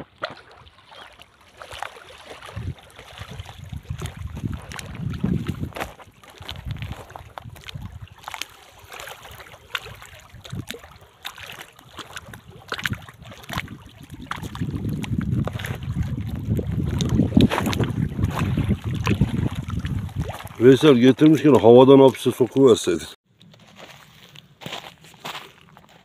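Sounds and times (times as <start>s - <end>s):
wind buffeting microphone: 2.4s - 8.2s, 9.9s - 10.8s, 12.0s - 21.0s.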